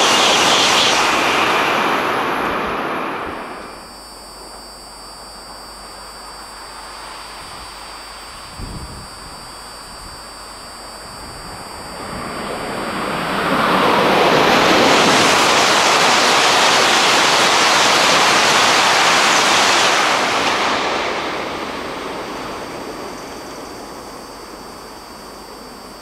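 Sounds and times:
rush of air and wheel noise: 0:00.0 - 0:04.0, 0:06.6 - 0:26.0
train passing: 0:00.0 - 0:04.6, 0:10.8 - 0:26.0.

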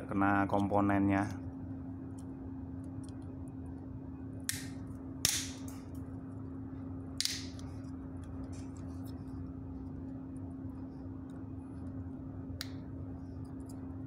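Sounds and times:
pliers cracking circuit board: 0:04.5 - 0:05.8, 0:07.2 - 0:07.6.

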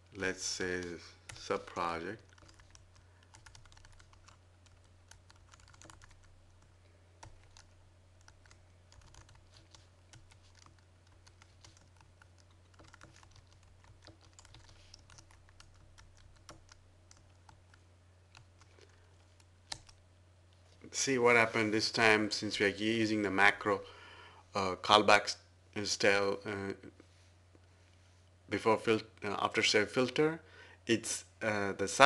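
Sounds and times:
steady low hum: 0:00.0 - 0:32.0
typing on computer keyboard: 0:02.2 - 0:06.3, 0:07.2 - 0:18.6.

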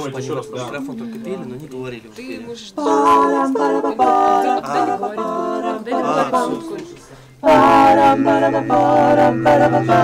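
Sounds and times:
a cappella group singing: 0:02.4 - 0:10.0.

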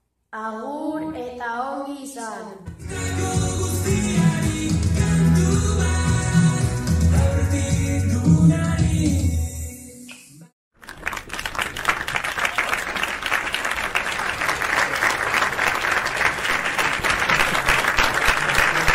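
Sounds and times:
music: 0:02.6 - 0:10.5
crowd applauding: 0:10.8 - 0:18.9.

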